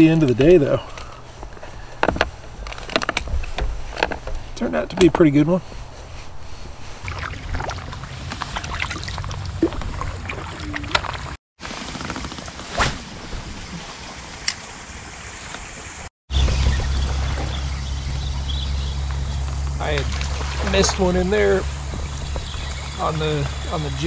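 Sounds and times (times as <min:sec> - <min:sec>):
fishing gear clicking and knocking: 0:00.0 - 0:05.3
water moving around kayak hull: 0:05.3 - 0:14.4, 0:15.0 - 0:24.0
wind rumble on microphone: 0:15.7 - 0:24.0.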